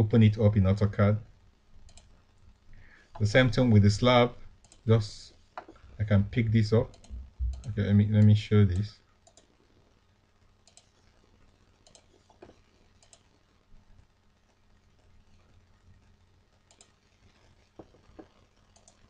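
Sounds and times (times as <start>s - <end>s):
low steady hum: 0.0s - 16.9s
computer mouse clicks: 1.8s - 2.1s, 4.6s - 4.8s, 6.9s - 9.5s, 10.6s - 10.9s, 11.8s - 13.2s, 16.7s - 16.9s, 17.8s - 19.0s.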